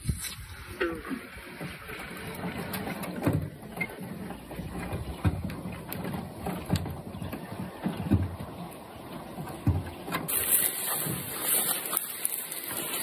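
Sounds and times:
water washing against hull: 0.0 - 13.0
paddle knocking on hull: 1.6 - 10.3.

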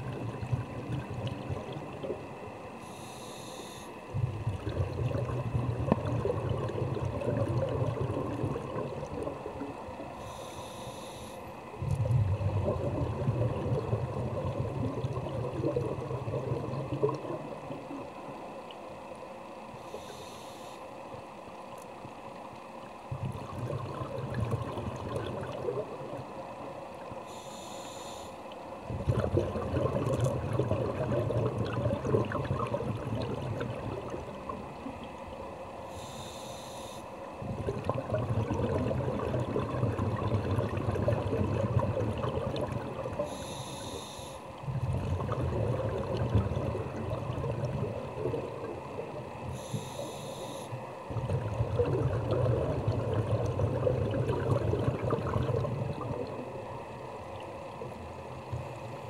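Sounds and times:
bubbling exhalation underwater: 0.0 - 2.2, 4.2 - 9.8, 11.8 - 17.9, 23.1 - 26.3, 28.9 - 34.7, 37.4 - 43.3, 44.6 - 49.3, 51.1 - 56.5
hissing regulator inhale: 2.8 - 4.0, 10.2 - 11.6, 19.8 - 20.9, 27.2 - 28.4, 35.9 - 37.2, 43.2 - 44.6, 49.4 - 50.8.

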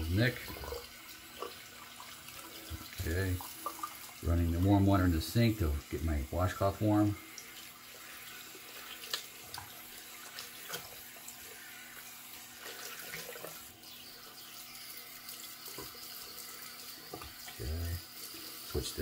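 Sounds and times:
sink tap running water: 0.0 - 19.0.

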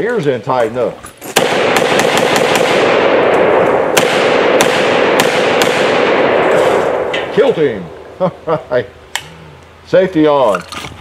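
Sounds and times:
rapid pistol gunshots: 1.4 - 7.8.

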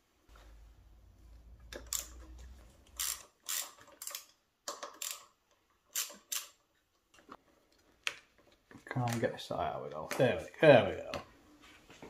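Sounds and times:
screwdriver scraping screws: 1.7 - 6.6.

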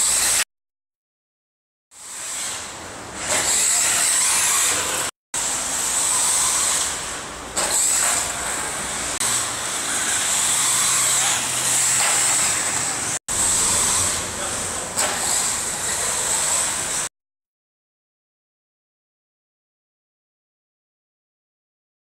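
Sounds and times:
rc car motors and tyres hissing: 0.0 - 0.5, 2.0 - 17.1.

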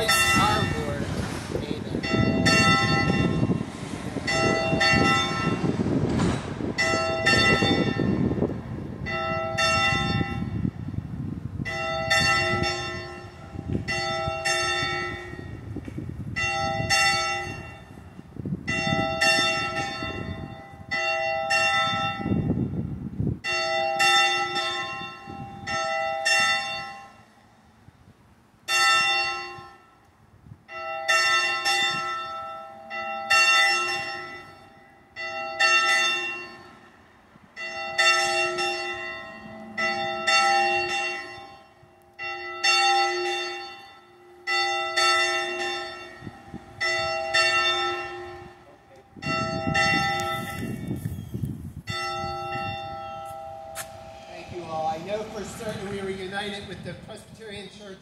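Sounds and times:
church bell ringing: 0.0 - 1.2, 1.8 - 6.0, 6.6 - 27.8, 28.6 - 51.2, 51.8 - 58.0
low rumble: 49.2 - 58.0.

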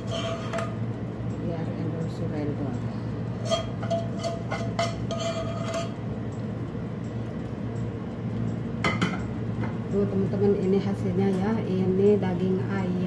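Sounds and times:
metal spoon scraping a pan: 0.0 - 0.8, 3.3 - 6.0.

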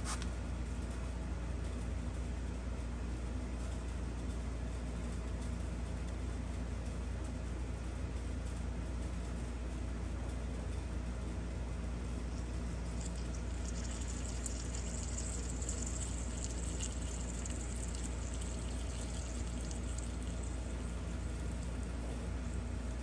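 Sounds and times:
solder sizzling and crackling: 12.1 - 23.0.

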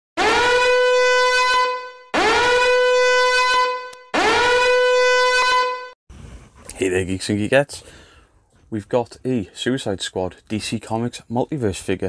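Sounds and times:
horn blasts: 0.2 - 6.0.

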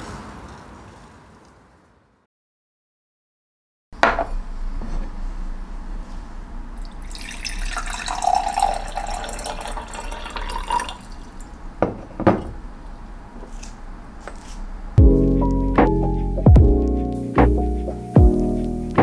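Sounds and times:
water pouring into glass: 6.8 - 11.6
glass knocking on counter: 11.8 - 12.6
piano music: 15.0 - 19.0.

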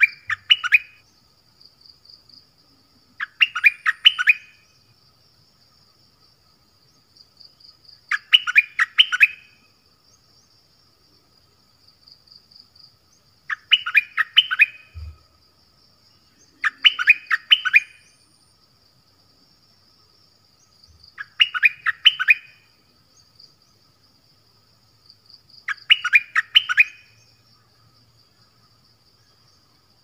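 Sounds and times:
faint high insect buzz: 0.0 - 30.0
songbird whistling rising notes: 3.2 - 4.6, 13.5 - 15.2, 16.4 - 18.2, 21.2 - 22.6.

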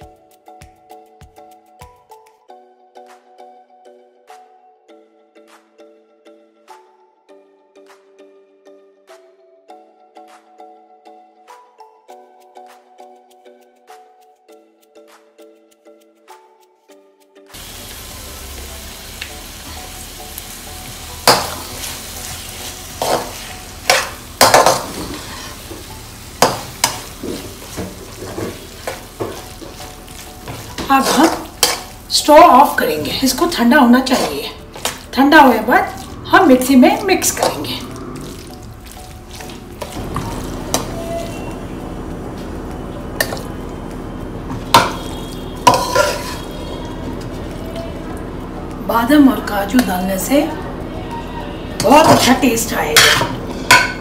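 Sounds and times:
food sizzling in a pan: 17.5 - 49.0
spoon clacking against a pan: 23.0 - 25.5, 26.4 - 32.0, 44.7 - 47.5, 52.9 - 54.0
metal skimmer scraping a pan: 23.0 - 25.8, 30.5 - 31.9, 44.7 - 47.2, 51.8 - 54.0
metal spoon scraping steel pot: 44.7 - 46.8.

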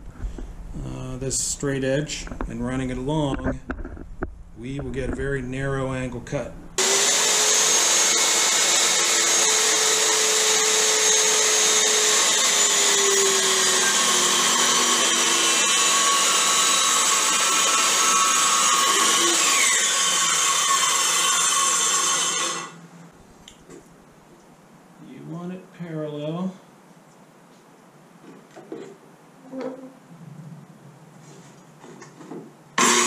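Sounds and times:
circular saw cutting wood: 6.8 - 22.8, 32.8 - 33.0.

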